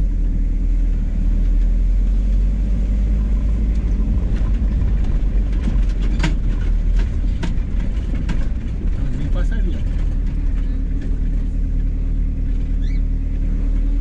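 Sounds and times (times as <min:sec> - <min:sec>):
engine and tyres rumbling: 0:00.0 - 0:14.0
sharp knocks and rattles: 0:03.1 - 0:12.8.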